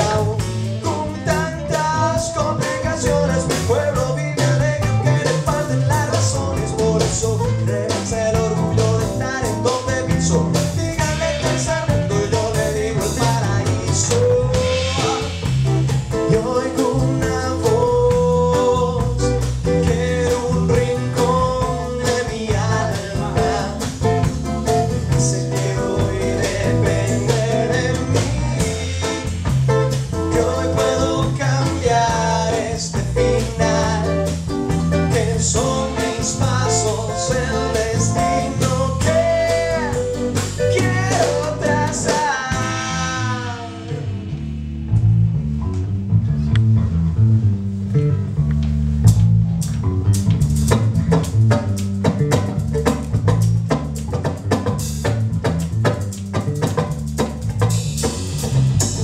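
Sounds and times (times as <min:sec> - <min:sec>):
man singing: 0:00.0 - 0:44.2
acoustic guitars strumming: 0:00.0 - 0:44.9
electric bass guitar: 0:00.0 - 0:59.0.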